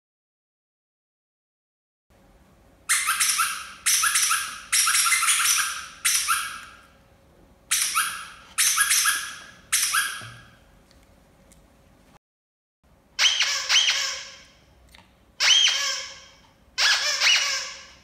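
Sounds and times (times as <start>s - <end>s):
toy squawking: 2.9s - 6.9s, 7.7s - 10.5s, 13.2s - 14.6s, 15.4s - 18.0s.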